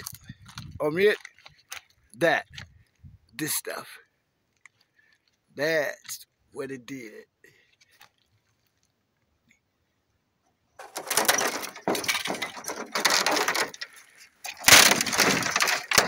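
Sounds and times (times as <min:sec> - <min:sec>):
brittle plastic cracking and crunching: 0:10.8 - 0:16.0.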